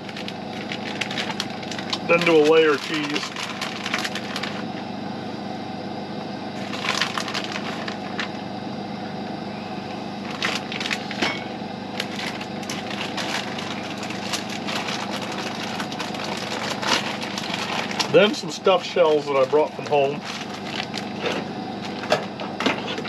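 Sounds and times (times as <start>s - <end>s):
food packaging crinkling: 0.0s - 4.6s, 6.6s - 8.3s, 10.3s - 11.3s, 12.0s - 18.2s, 19.9s - 22.1s
steady low hum: 0.0s - 23.0s.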